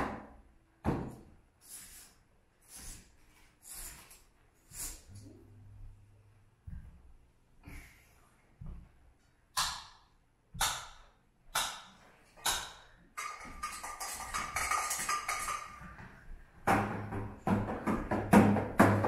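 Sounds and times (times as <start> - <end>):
shaking rattle: 13.3 - 15.8.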